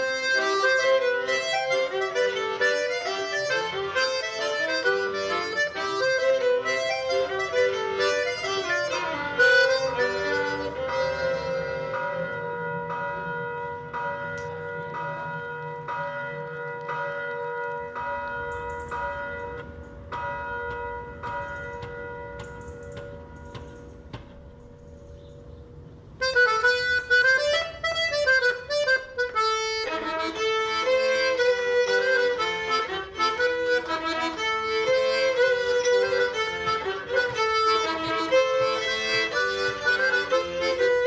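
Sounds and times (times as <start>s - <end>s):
lively instrumental tune: 0.0s - 12.1s, 26.2s - 41.0s.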